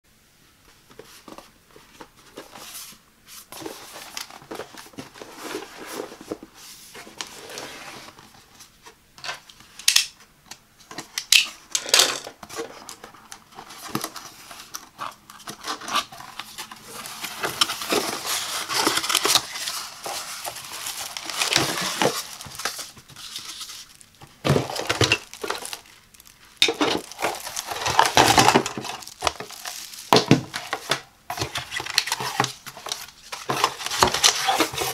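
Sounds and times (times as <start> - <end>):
plastic bag crinkling: 13.6 - 34.9.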